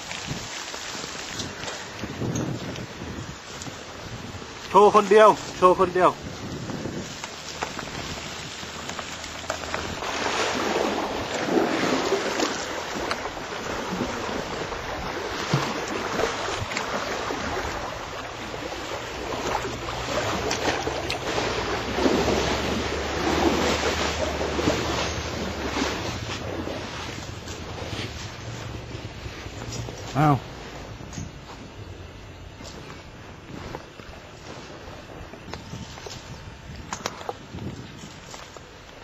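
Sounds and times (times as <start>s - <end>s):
water sloshing: 0.0s - 39.0s
wind rumbling on microphone: 0.0s - 39.0s.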